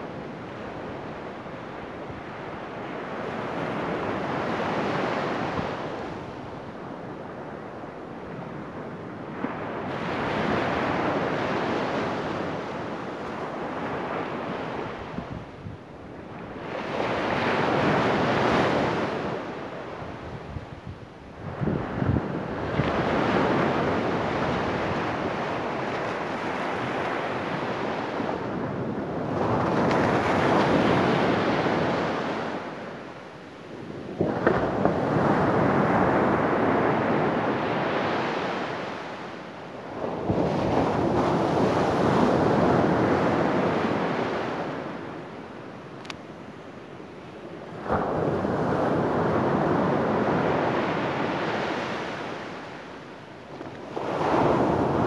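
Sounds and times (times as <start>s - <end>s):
surf crashing on beach: 0.0s - 55.0s.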